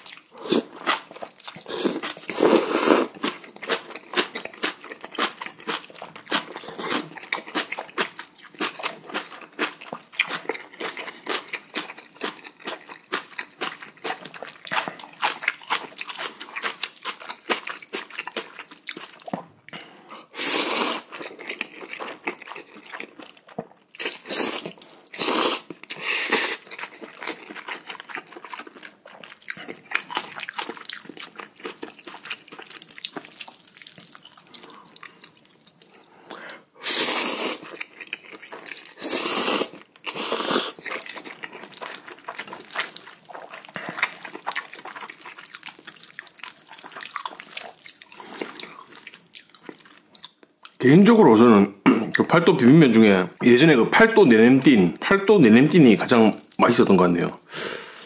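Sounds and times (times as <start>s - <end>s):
wet chewing and smacking: 0.0s - 20.1s, 21.0s - 36.6s, 37.6s - 50.8s
slurping noodles: 1.6s - 3.2s, 20.2s - 21.2s, 24.1s - 26.8s, 36.3s - 37.8s, 38.8s - 45.0s.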